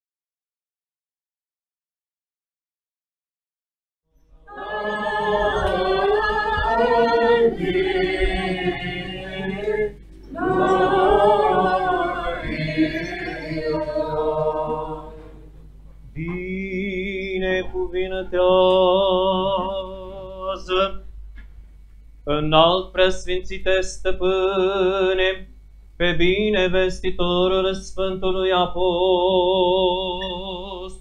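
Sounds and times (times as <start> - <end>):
choir singing unaccompanied chant: 4.4 - 15.6, 16.2 - 21.0, 26.0 - 31.0.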